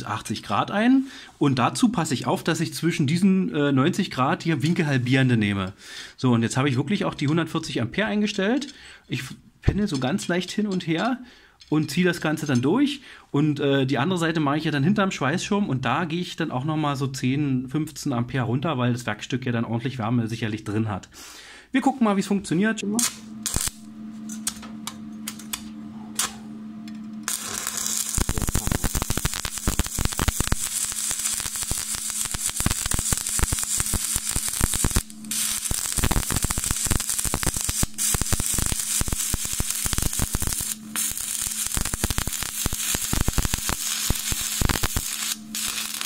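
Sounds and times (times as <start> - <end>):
steady electrical hum: 0.0 - 46.0
welding arc crackling and sputtering: 22.8 - 46.0.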